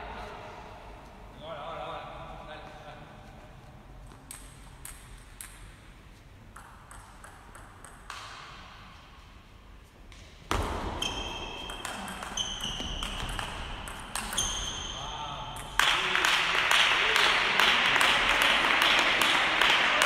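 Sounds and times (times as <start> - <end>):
table tennis ball pinging: 6.5 - 8.6, 10.5 - 16.0.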